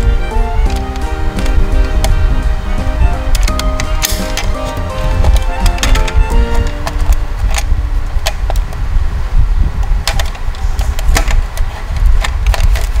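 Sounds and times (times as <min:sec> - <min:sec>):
low rumble: 0:00.0 - 0:11.2
plastic toy parts clicking: 0:03.3 - 0:04.6, 0:05.2 - 0:08.8, 0:09.8 - 0:13.0.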